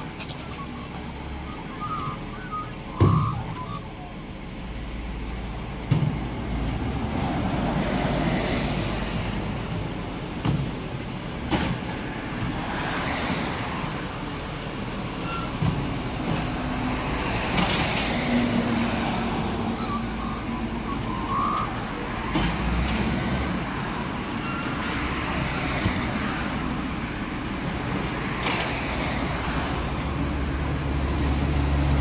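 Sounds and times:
sharp knocks and clanks: 3.0 - 3.4, 5.8 - 6.3, 10.4 - 12.6.

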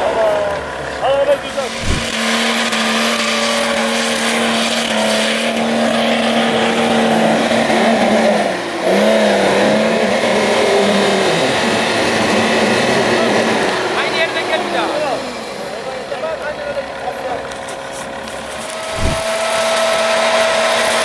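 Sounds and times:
engine revving high: 1.5 - 15.7, 18.6 - 21.0.

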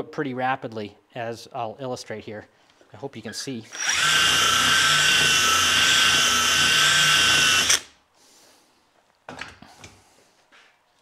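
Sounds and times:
drill spinning wire brush: 3.7 - 7.9.

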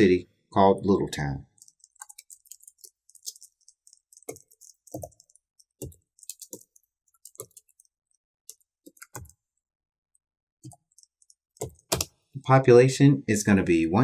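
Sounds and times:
computer keyboard typing: 1.5 - 9.4, 10.6 - 12.2.

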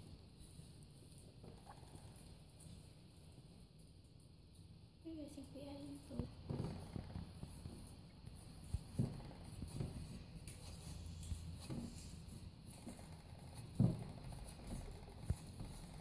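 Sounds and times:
hands kneading sticky dough: 6.4 - 16.0.

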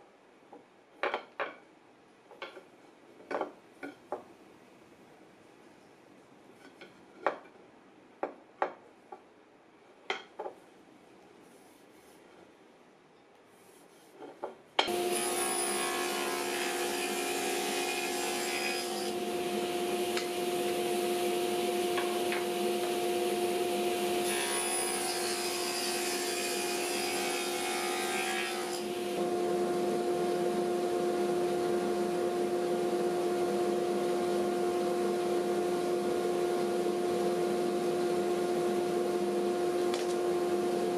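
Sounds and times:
table saw humming: 14.9 - 33.9.

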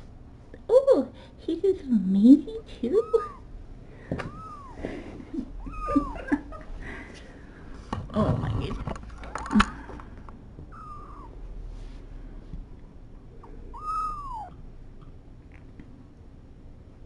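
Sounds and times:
kittens mewing: 2.8 - 3.5, 4.2 - 6.6, 10.7 - 11.4, 13.4 - 14.6.

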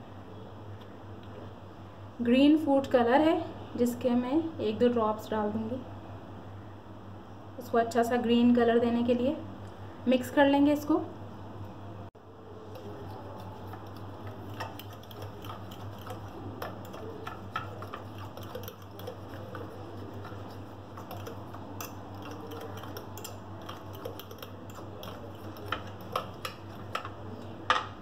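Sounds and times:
steady low hum: 0.0 - 28.0
fork scraping ceramic bowl: 12.7 - 27.2.

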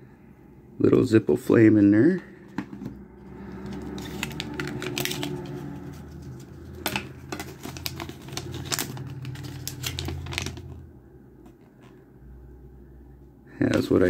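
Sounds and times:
low hum: 2.4 - 13.5
paper crinkling: 3.6 - 10.8.

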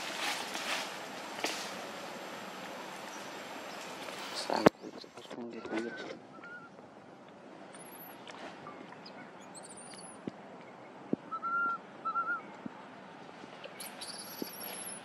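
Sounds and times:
small birds chirping: 1.3 - 12.7, 13.5 - 15.0
whistled bird notes: 4.8 - 6.8, 7.7 - 12.5, 13.8 - 15.0.

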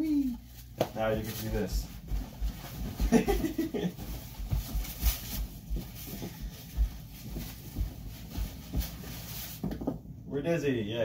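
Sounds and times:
plastic bag rustling: 0.4 - 10.0
footsteps thudding on floor: 1.7 - 10.1.

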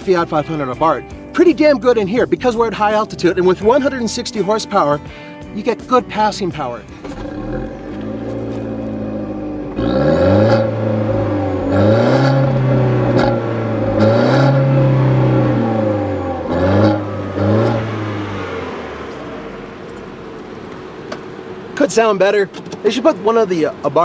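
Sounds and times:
car engine idling and revving: 6.2 - 24.0.

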